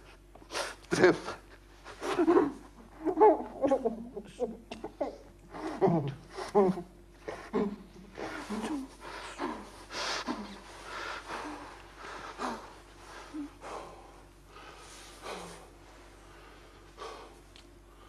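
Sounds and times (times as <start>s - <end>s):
man breathing heavily: 7.2s - 18.0s.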